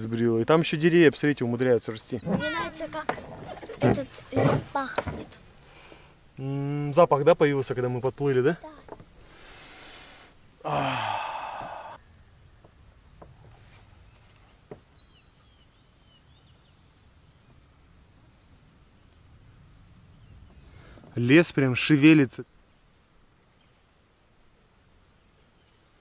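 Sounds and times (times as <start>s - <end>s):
rainforest ambience: 0.0s - 26.0s
person sighing a word: 10.6s - 12.0s.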